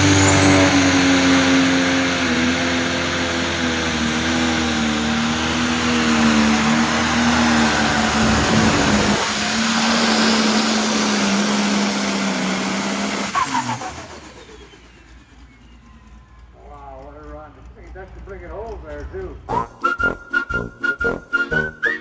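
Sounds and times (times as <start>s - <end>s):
diesel engine droning: 0.0s - 22.0s.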